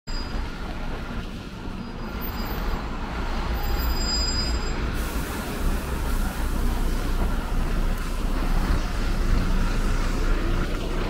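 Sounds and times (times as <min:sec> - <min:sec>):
low city rumble: 0:00.1 - 0:11.0
faint high-pitched squeals: 0:03.5 - 0:04.9.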